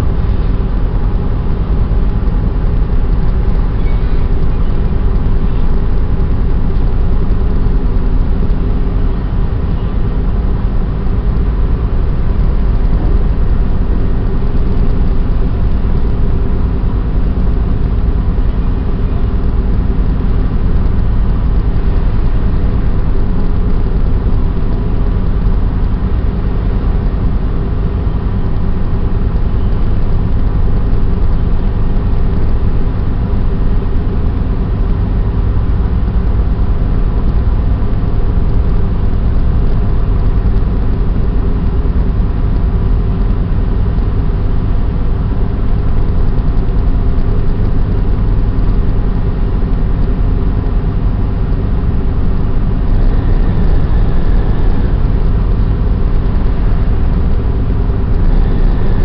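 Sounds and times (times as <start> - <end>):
ship machinery droning: 51.0 - 59.0.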